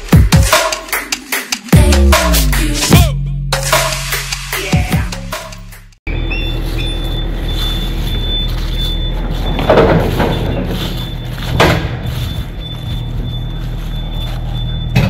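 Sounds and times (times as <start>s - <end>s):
engine hum: 6.1s - 15.0s.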